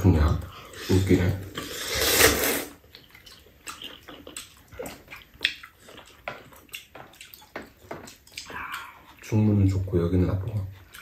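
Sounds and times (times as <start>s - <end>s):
noodles being slurped: 0.8s - 6.2s.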